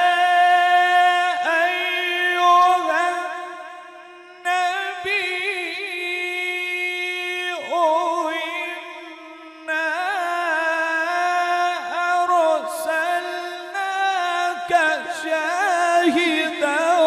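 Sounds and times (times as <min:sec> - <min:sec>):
man reciting melodically: 0:00.0 - 0:17.0.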